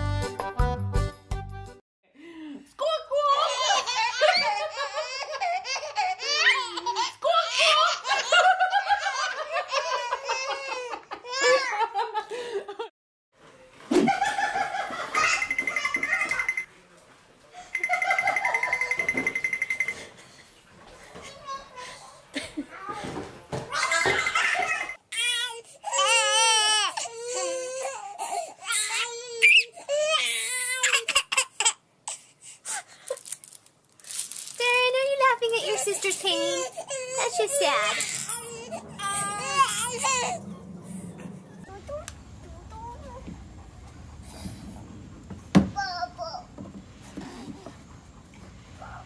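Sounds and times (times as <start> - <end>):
babies laughing: 3.1 - 12.2, 14.1 - 16.6, 23.6 - 25.0, 35.6 - 41.6
baby squealing and babbling: 28.7 - 31.7, 36.4 - 40.4.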